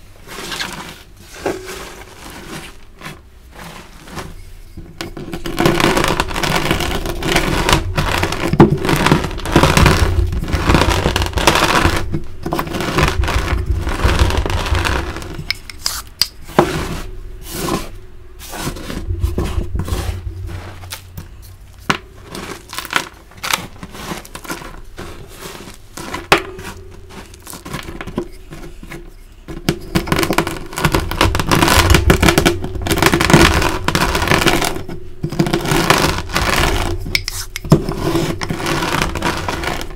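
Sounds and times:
hand sweeping chalk powder: 0:00.0 - 0:04.8, 0:11.5 - 0:30.1, 0:35.9 - 0:39.9
rolling pin crushing chalk: 0:00.0 - 0:39.9.

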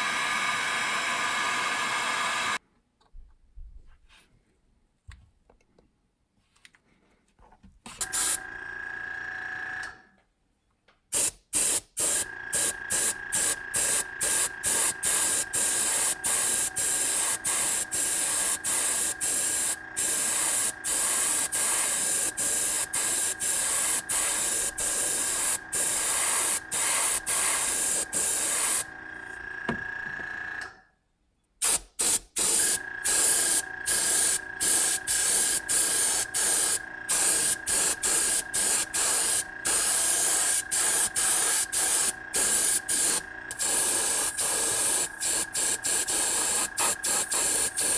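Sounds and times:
small air compressor whine: 0:00.0 - 0:02.6, 0:07.9 - 0:10.2, 0:11.1 - 0:31.0, 0:31.6 - 0:47.9
airbrush spraying in bursts: 0:08.0 - 0:08.4, 0:11.1 - 0:28.9, 0:31.6 - 0:47.9.

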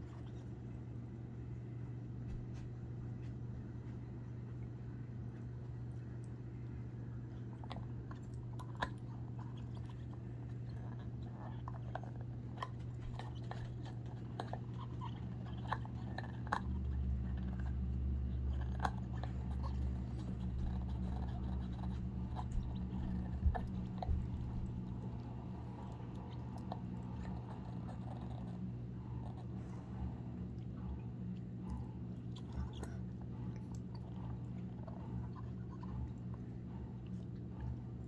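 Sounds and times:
dog chewing rubber toy: 0:07.3 - 0:38.0.

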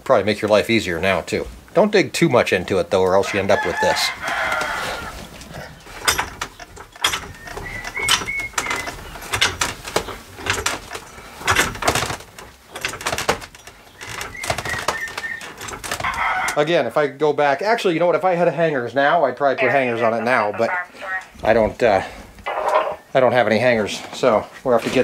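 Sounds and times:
chickens clucking: 0:03.0 - 0:09.5, 0:14.0 - 0:16.6
sharp knocks and clatters: 0:05.4 - 0:16.6.

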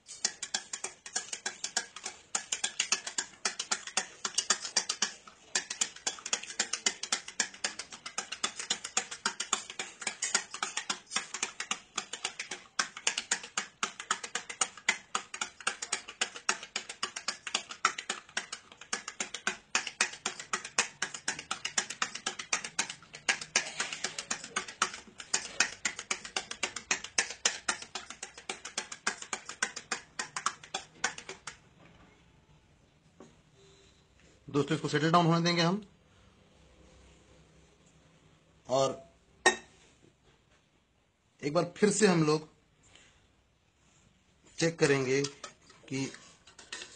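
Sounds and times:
stirrer clinking against glass: 0:00.1 - 0:31.6, 0:45.2 - 0:46.9.

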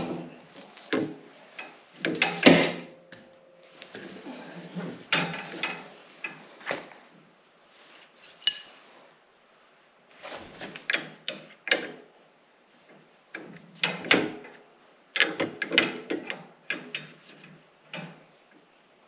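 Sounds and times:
wrench clanking on metal fittings: 0:08.2 - 0:08.8.

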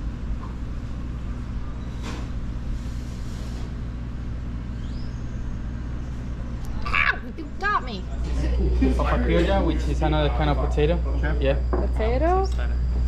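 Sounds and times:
steady low hum: 0:00.0 - 0:13.0
short rising chirp: 0:04.7 - 0:06.5.

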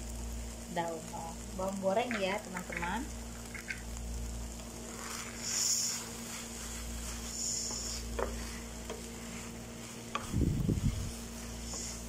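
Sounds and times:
noodles sizzling in a frying pan: 0:00.0 - 0:12.0
wooden spatula stirring: 0:04.6 - 0:12.0.

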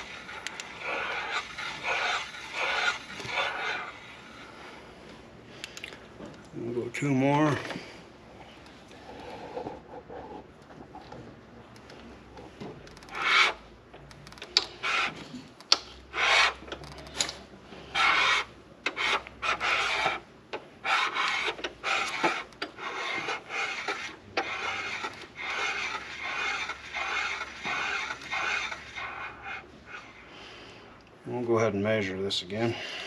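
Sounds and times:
cutter scraping metal: 0:00.0 - 0:04.5, 0:17.9 - 0:20.2, 0:20.8 - 0:30.1.

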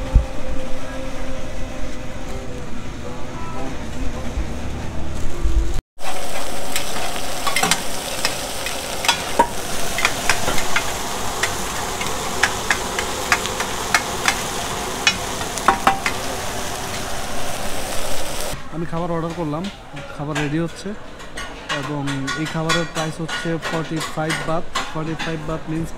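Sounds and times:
food sizzling in oil: 0:06.0 - 0:18.6
metal spatulas scraping and clinking: 0:06.7 - 0:14.5, 0:19.3 - 0:25.6.

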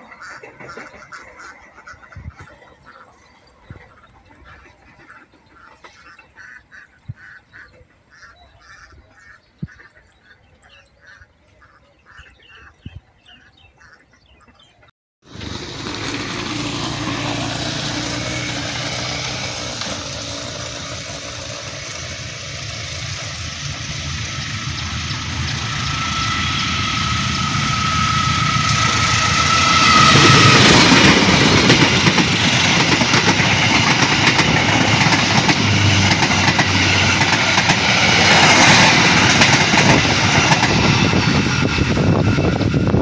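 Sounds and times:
ducks quacking: 0:00.0 - 0:14.9
loud steady rushing noise: 0:15.3 - 0:43.0.

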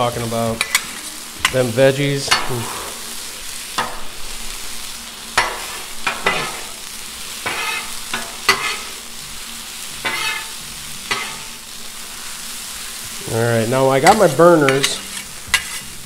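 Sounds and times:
vegetables sizzling on griddle: 0:00.0 - 0:16.0
metal spatulas scraping steel: 0:07.4 - 0:08.9, 0:10.0 - 0:10.5, 0:11.1 - 0:11.5, 0:14.0 - 0:16.0.

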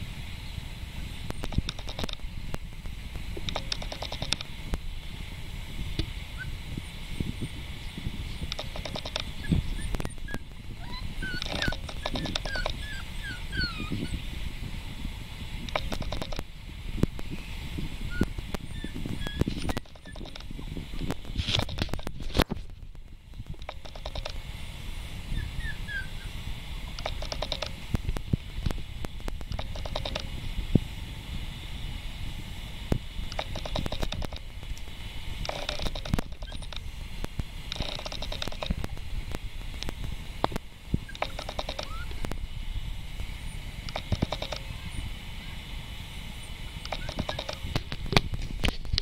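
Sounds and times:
rapid clicking: 0:01.3 - 0:04.9, 0:08.4 - 0:14.1, 0:15.6 - 0:17.3, 0:18.2 - 0:24.4, 0:26.9 - 0:30.3, 0:32.9 - 0:42.4, 0:43.8 - 0:44.7, 0:46.8 - 0:49.0
puppy claws clicking on tile: 0:03.5 - 0:04.5, 0:08.5 - 0:10.4, 0:11.2 - 0:13.9, 0:18.8 - 0:20.6, 0:23.5 - 0:24.4, 0:27.0 - 0:27.8, 0:33.4 - 0:34.5, 0:37.7 - 0:38.9, 0:40.4 - 0:42.1
puppy whimpering: 0:09.4 - 0:14.2, 0:18.1 - 0:20.8, 0:25.3 - 0:26.3, 0:41.1 - 0:42.2.

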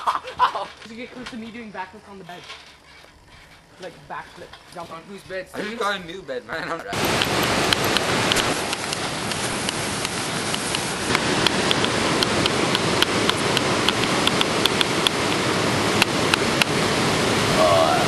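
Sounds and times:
loud steady rushing noise: 0:03.9 - 0:18.0.

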